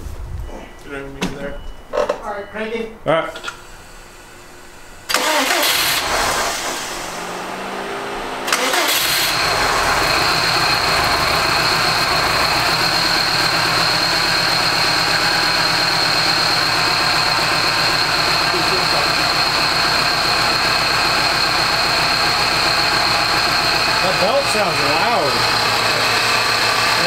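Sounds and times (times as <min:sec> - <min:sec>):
car engine idling: 0:03.6 - 0:27.0
car engine cranking on starter: 0:05.1 - 0:27.0
high whine: 0:09.2 - 0:27.0.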